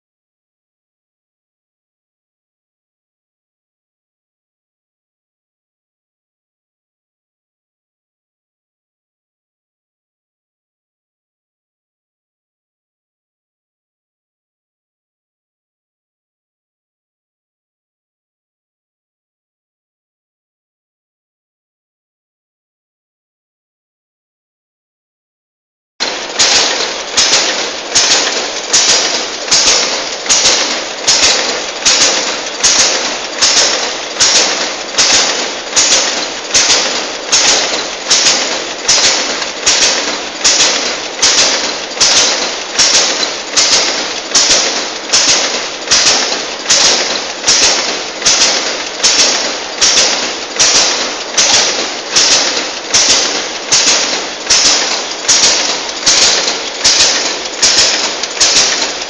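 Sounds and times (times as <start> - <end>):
packaging machine clacking: 26.0 - 59.0.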